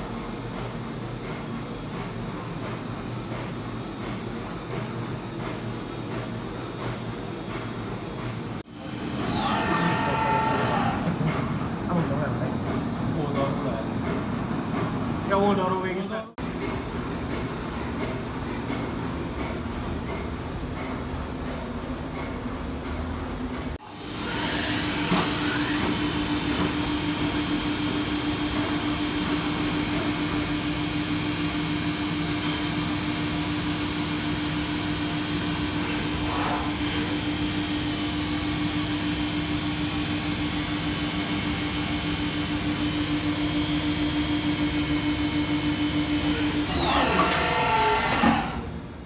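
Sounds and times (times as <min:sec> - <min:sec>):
milling machine spindle whine: 0:08.7 - 0:11.9, 0:23.8 - 0:48.9.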